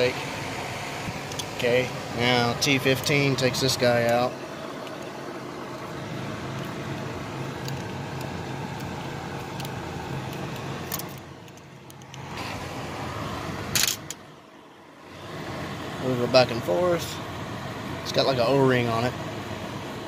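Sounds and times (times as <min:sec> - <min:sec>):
steady background hum: 0:00.0 - 0:20.0.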